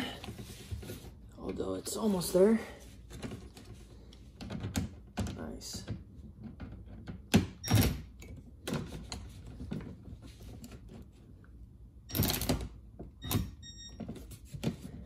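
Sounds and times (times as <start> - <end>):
rustling scrape: 0.3 - 1.2.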